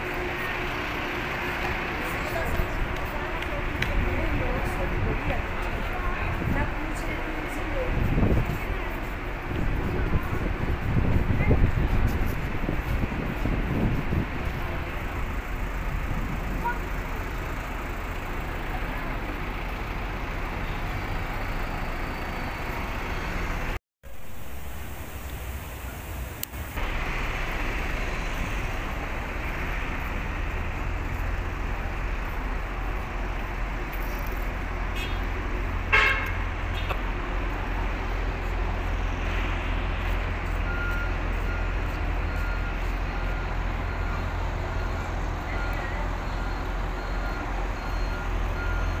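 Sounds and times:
street traffic rumble: 0.0s - 49.0s
car horn toot: 16.5s - 16.9s, 35.0s - 35.3s, 35.9s - 37.0s
faint beeping tone: 40.0s - 49.0s.

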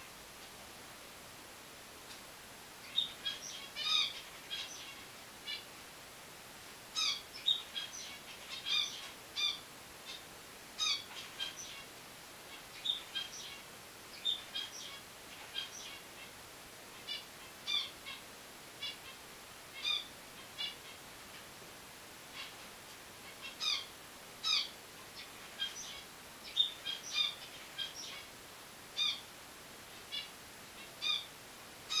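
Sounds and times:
faint steady hiss: 0.0s - 32.0s
finches chirping: 2.8s - 5.7s, 6.9s - 11.9s, 12.5s - 18.2s, 18.8s - 21.0s, 22.3s - 28.3s, 28.9s - 29.3s, 29.9s - 31.3s.

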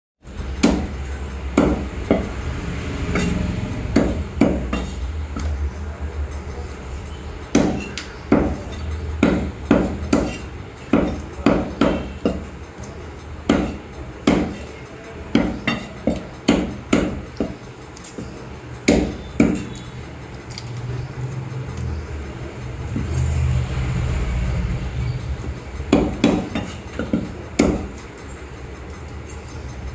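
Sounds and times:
steady low hum: 0.2s - 29.9s
cleaver chopping on wooden block: 0.6s - 1.0s, 1.6s - 2.3s, 3.9s - 5.5s, 7.5s - 8.6s, 9.2s - 12.4s, 13.5s - 14.6s, 15.3s - 17.6s, 18.9s - 19.8s, 25.9s - 27.9s.

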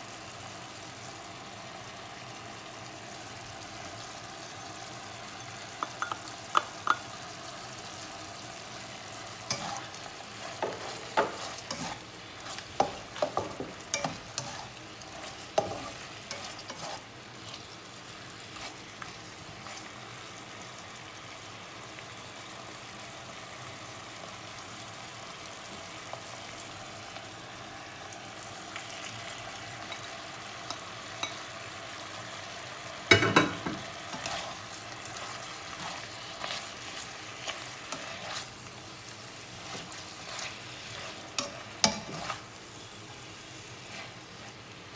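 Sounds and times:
beef sizzling in a frying pan: 0.0s - 44.9s
spatula scraping and knocking pan: 9.5s - 17.0s, 33.1s - 38.5s, 39.6s - 42.5s.

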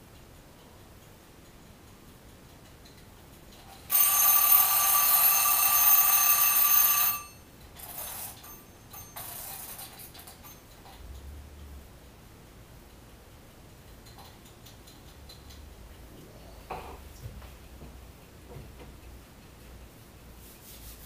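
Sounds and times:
kitchen timer bell ringing: 3.9s - 9.7s.

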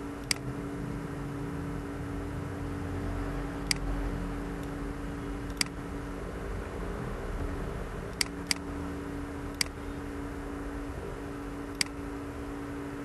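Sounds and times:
electrical hum: 0.0s - 13.0s
low two-tone drone: 0.0s - 13.0s
computer mouse clicks: 0.2s - 0.5s, 3.6s - 3.9s, 5.5s - 5.8s, 8.1s - 8.7s, 9.5s - 9.8s, 11.7s - 12.0s.

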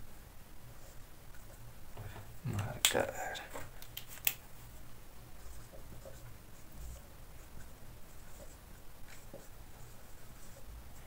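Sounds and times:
marker writing on whiteboard: 5.4s - 11.0s.

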